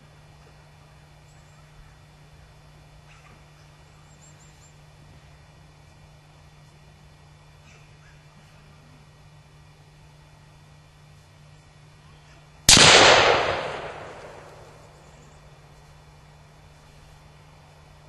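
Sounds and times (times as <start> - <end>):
loud gunshot bang with echo: 12.7 - 14.9.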